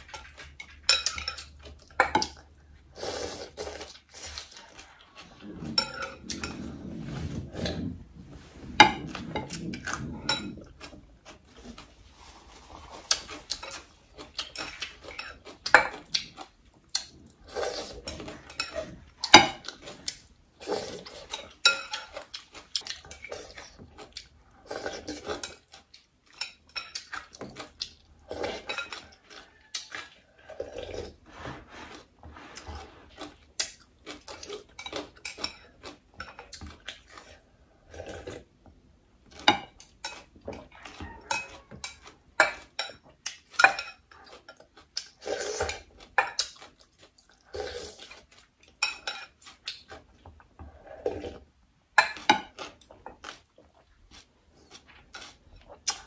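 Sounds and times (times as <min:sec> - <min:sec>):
slurping and mouth sounds: 0:02.8 - 0:15.4, 0:17.0 - 0:18.8, 0:45.0 - 0:48.4.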